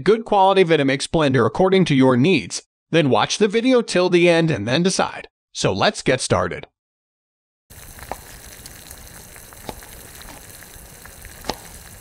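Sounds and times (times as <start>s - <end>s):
food sizzling in hot oil: 7.7s - 12.0s
oil popping: 7.7s - 12.0s.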